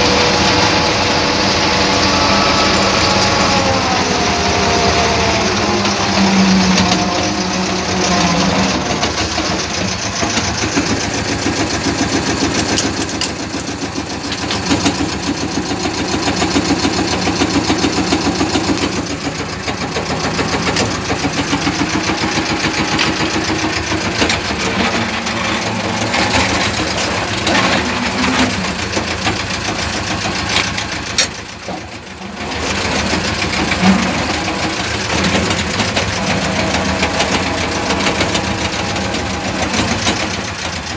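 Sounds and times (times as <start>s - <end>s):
tractor diesel engine under load: 0.0s - 40.9s.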